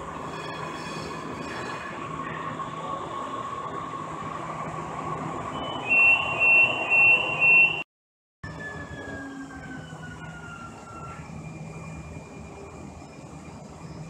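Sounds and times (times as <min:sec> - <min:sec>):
train running noise: 0:00.0 - 0:07.8, 0:08.5 - 0:14.0
train whine falling in pitch: 0:05.4 - 0:07.8.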